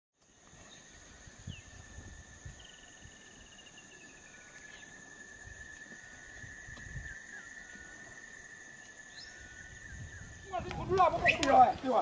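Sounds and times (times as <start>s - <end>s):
insects shrilling: 0.3s - 12.0s
bird chirp: 2.5s - 12.0s.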